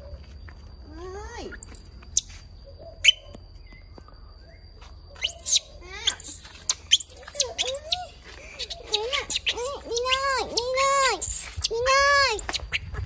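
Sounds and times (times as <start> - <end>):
baby monkey squeaking: 1.5 - 2.3, 5.2 - 13.0.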